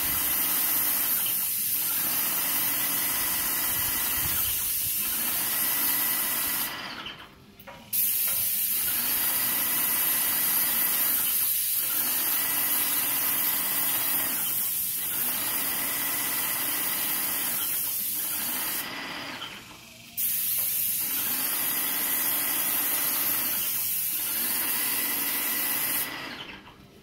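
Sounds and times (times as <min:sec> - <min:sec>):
paint spray gun hissing: 0:00.0 - 0:06.9, 0:07.9 - 0:26.4.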